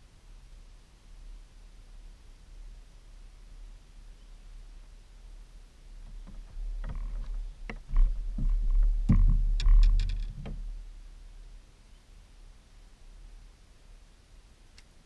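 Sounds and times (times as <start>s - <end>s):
knocks and thumps on boat deck: 6.0s - 10.8s.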